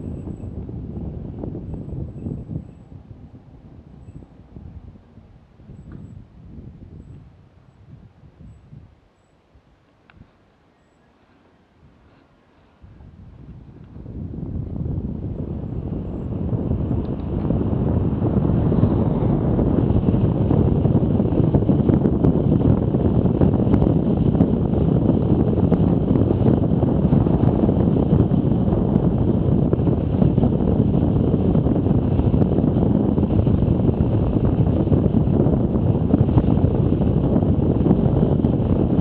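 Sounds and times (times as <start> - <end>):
wind rushing over microphone: 0.0 - 10.5, 11.2 - 39.0
faint clicks: 10.0 - 10.2.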